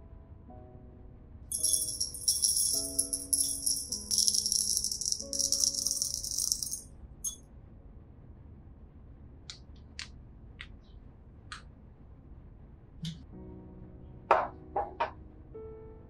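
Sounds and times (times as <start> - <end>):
coffee beans pouring into glass: 1.5 - 6.8.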